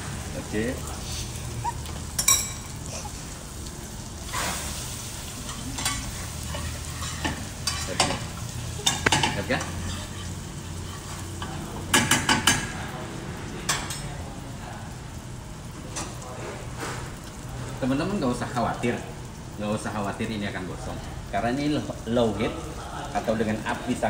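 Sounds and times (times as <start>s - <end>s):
onion sizzling in pan: 0.0s - 24.0s
metal spoon scraping pan: 5.4s - 11.4s.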